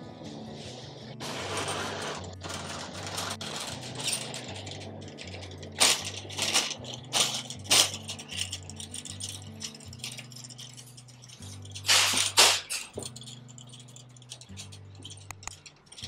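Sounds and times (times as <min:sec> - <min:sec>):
background music with bass line: 0:00.0 - 0:16.0
shopping cart wheeling: 0:01.2 - 0:13.2
shopping cart rattling clanks: 0:01.3 - 0:16.0.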